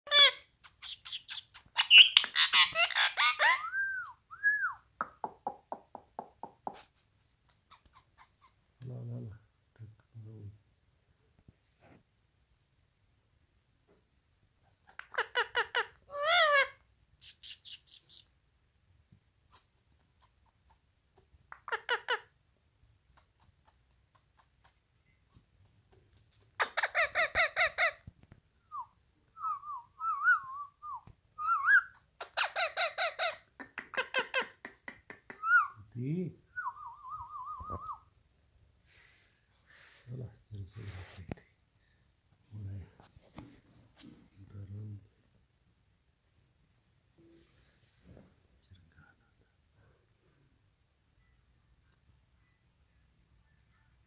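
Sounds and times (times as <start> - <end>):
parakeet chirping and chattering: 0.1 - 3.6, 7.5 - 8.7, 14.6 - 18.3, 21.2 - 22.3, 23.2 - 28.0, 31.9 - 35.8
parakeet calling: 0.1 - 3.7, 32.2 - 34.5.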